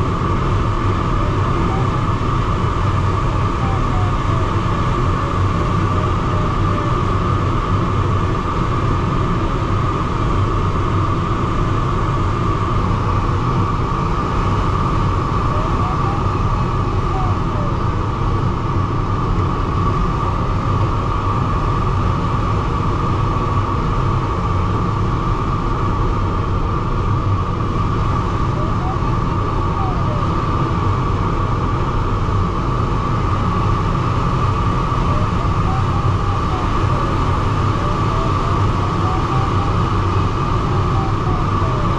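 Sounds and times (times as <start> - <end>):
airflow rushing around cockpit: 0.0 - 41.9
constant mid-pitched tone: 0.0 - 41.9.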